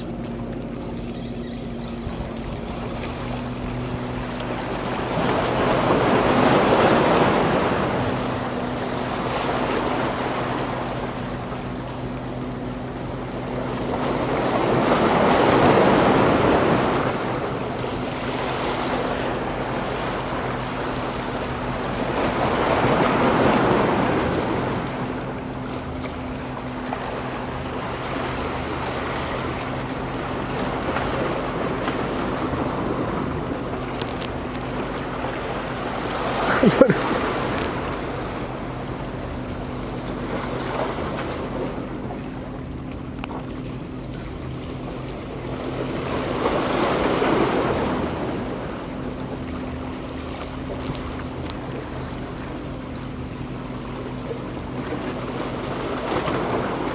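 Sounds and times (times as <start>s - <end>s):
sea waves washing against rocks: 4.2s - 12.6s, 13.2s - 42.4s, 45.6s - 53.3s, 55.0s - 56.9s.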